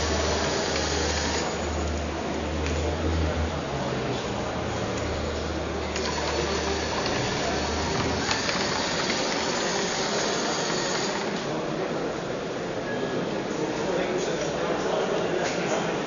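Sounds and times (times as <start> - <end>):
robot motors whirring: 0.0 - 1.9, 5.9 - 11.4.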